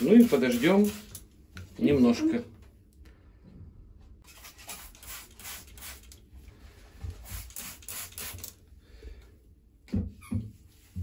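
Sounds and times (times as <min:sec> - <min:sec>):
spray bottle squirting: 0:00.2 - 0:01.2, 0:04.2 - 0:06.2, 0:07.2 - 0:08.6.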